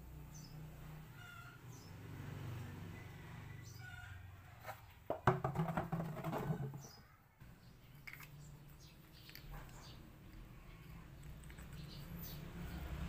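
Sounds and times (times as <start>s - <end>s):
plastic drum clattering and rubbing: 4.6s - 7.0s
hollow knock on plastic drum: 5.1s - 6.8s.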